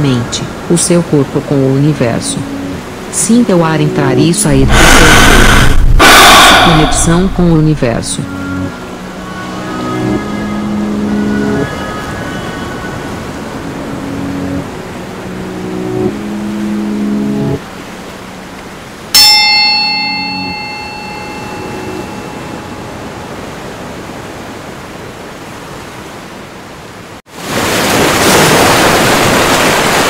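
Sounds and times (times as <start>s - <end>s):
soft sustained musical tones: 0.0s - 4.7s, 7.0s - 24.4s
loud rushing river water: 0.0s - 7.6s, 8.3s - 30.0s
steady wash of water: 6.7s - 30.0s
bell ringing: 19.2s - 23.6s.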